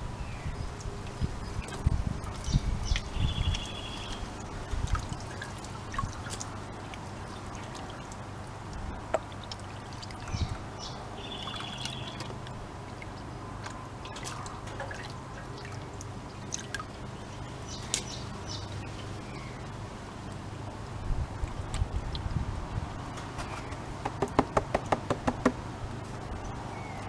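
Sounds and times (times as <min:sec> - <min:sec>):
water sloshing in a tub: 0:00.7 - 0:27.0
small splashes and clicks: 0:00.8 - 0:19.4.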